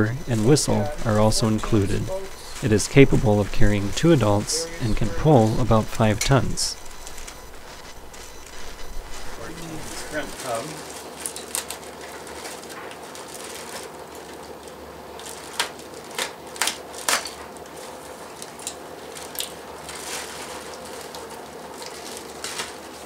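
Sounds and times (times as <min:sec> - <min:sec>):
faint steady hum: 0:00.0 - 0:16.7
sharp crackles and clicks: 0:00.3 - 0:10.4
plastic bag rustling: 0:00.3 - 0:23.0.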